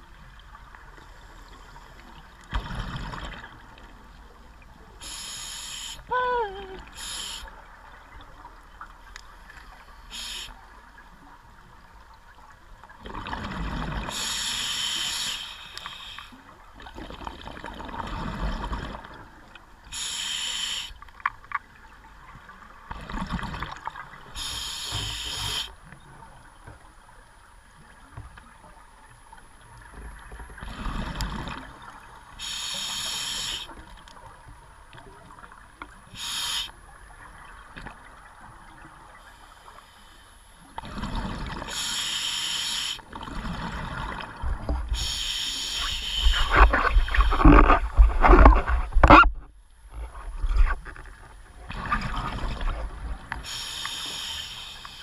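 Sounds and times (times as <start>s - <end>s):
exhaled bubbles hissing: 5.0s - 6.1s, 6.9s - 7.7s, 10.0s - 10.7s, 13.2s - 19.1s, 19.9s - 21.0s, 23.0s - 25.8s, 32.3s - 33.9s, 36.1s - 36.7s, 40.8s - 44.2s, 44.9s - 48.5s, 51.7s - 55.0s.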